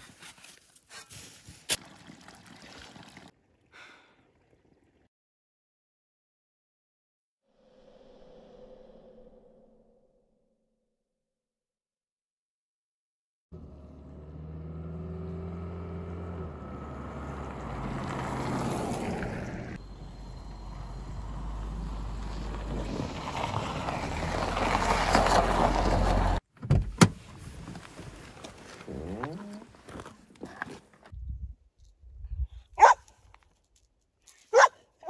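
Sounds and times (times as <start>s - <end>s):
car driving on packed snow: 13.5s - 26.4s, 27.0s - 30.9s.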